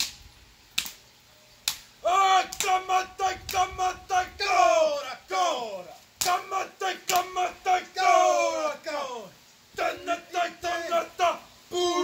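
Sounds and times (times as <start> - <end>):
hands slapping body: 0.0 - 0.2, 0.8 - 1.0, 1.6 - 1.9, 2.5 - 2.8, 6.2 - 6.4, 7.1 - 7.3
men chanting in unison: 2.0 - 12.0.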